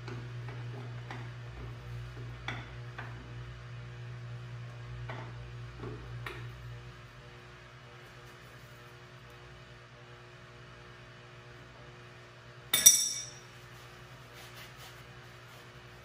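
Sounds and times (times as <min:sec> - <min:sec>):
steady low hum: 0:12.2 - 0:16.0
hand tools clinking on metal: 0:12.8 - 0:13.5.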